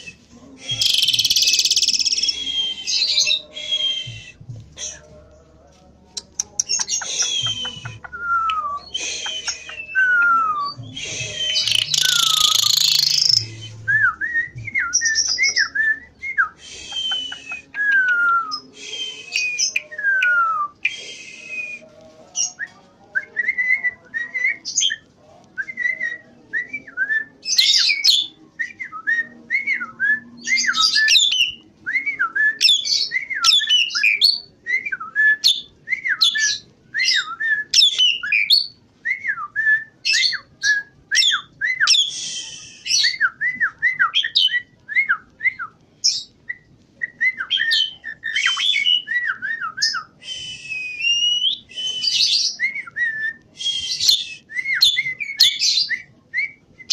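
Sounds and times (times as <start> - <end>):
starling singing: 0.0 - 25.1, 25.8 - 34.5.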